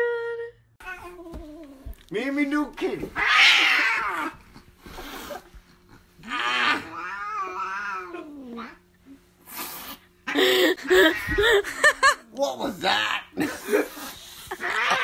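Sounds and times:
cat yowling: 3.2 - 4.4, 6.2 - 8.8, 14.6 - 15.0.

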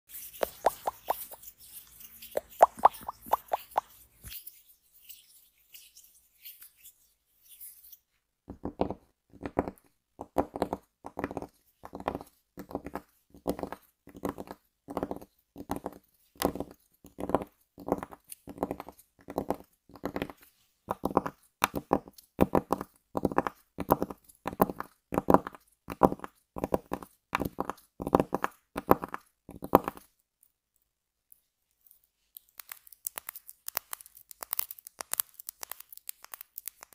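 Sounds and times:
fingertips tapping on cloth: 0.4 - 1.5, 2.3 - 3.9.

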